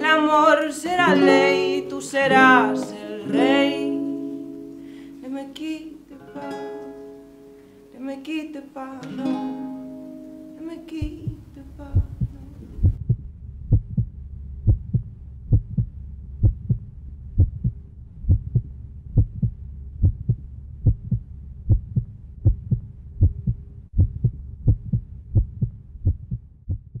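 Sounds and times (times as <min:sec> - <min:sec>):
low hum: 0:10.6 - 0:27.0
heartbeat double thump: 0:11.0 - 0:27.0.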